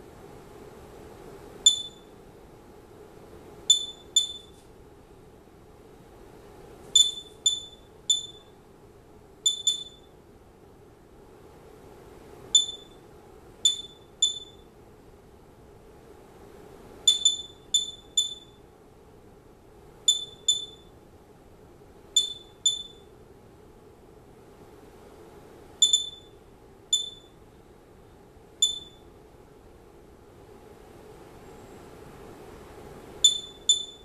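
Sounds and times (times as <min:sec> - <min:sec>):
geiger counter chirps: 0:01.6 - 0:02.1, 0:03.7 - 0:04.6, 0:07.0 - 0:08.5, 0:09.5 - 0:10.1, 0:12.6 - 0:13.0, 0:13.6 - 0:14.7, 0:17.1 - 0:18.6, 0:20.1 - 0:20.9, 0:22.2 - 0:23.1, 0:25.8 - 0:27.4, 0:28.6 - 0:29.1, 0:33.2 - 0:34.0.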